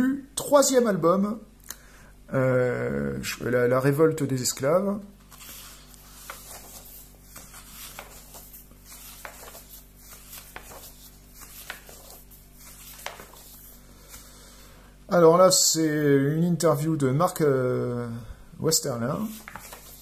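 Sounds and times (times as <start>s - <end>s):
faint room hum: 0.0s - 20.0s
paper pages rustling: 5.2s - 14.3s, 19.1s - 20.0s.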